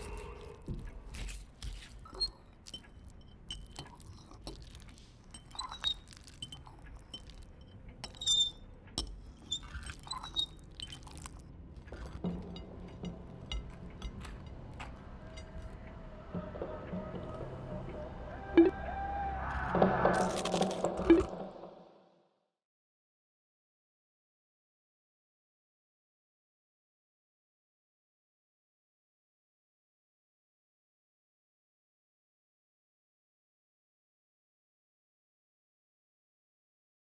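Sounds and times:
metal fork clinking against bowl: 1.7 - 15.5.

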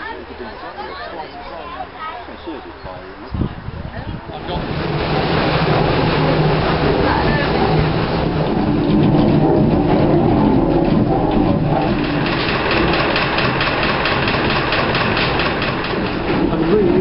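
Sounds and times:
fast regular clatter: 4.4 - 17.0
mill machinery rumbling: 4.4 - 17.0.

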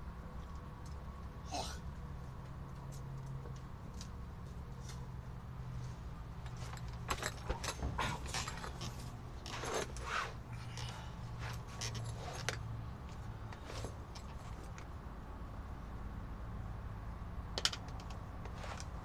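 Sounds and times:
light clicks and rattles: 5.7 - 10.0, 17.5 - 19.0.

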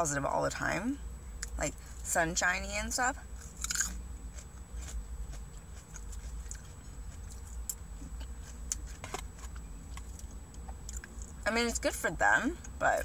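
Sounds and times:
steady low hum: 0.0 - 13.0
person chewing food: 3.4 - 11.4.

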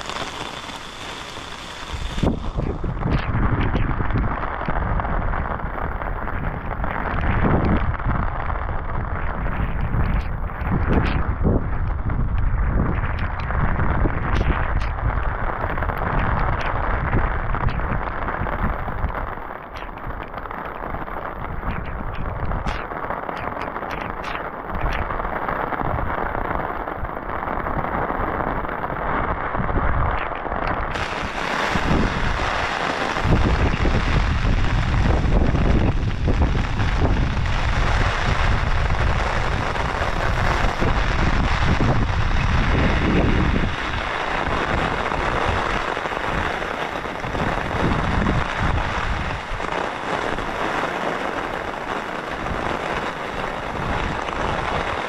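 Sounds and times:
heavy rain falling: 0.0 - 55.0
deep rumble: 1.9 - 19.1.

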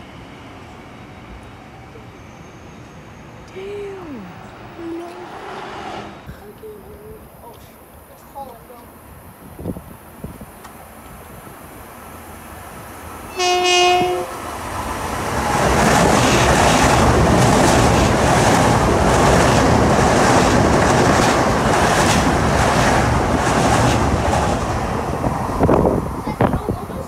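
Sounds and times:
wheel and rail rushing: 4.3 - 7.4, 9.0 - 27.0
train horn blast: 13.3 - 14.4.

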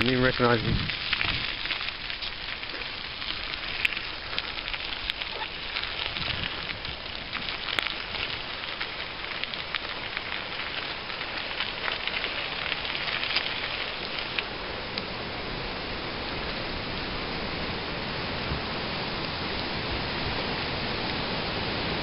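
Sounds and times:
loose stones clicking: 0.0 - 15.1
bicycle tyres rolling over gravel: 0.0 - 22.0.

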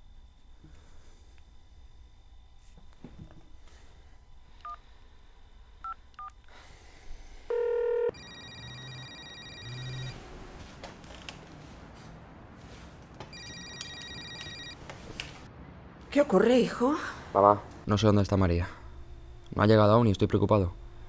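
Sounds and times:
telephone ringing: 7.5 - 10.2, 13.3 - 14.8
phone keypad beeps: 13.3 - 14.8.

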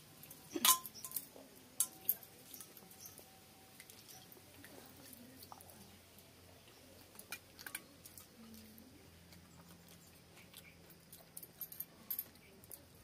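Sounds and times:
chewing: 1.2 - 13.0.

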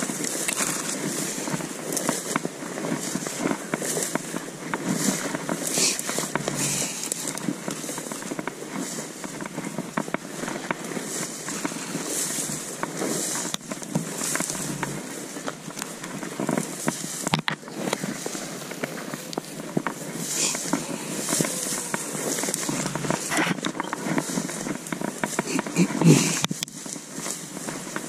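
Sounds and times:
footsteps crackling through dry brush: 0.0 - 28.0.

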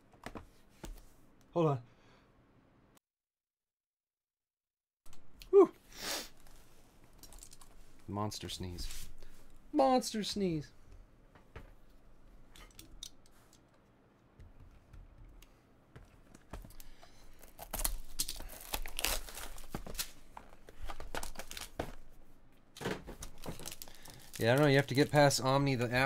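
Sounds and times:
plastic wrap tearing: 17.4 - 20.2, 20.9 - 21.8, 23.2 - 26.0.

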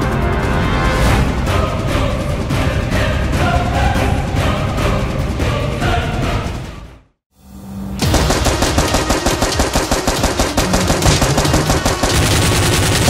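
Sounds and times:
rapid automatic gunfire: 8.0 - 13.0.

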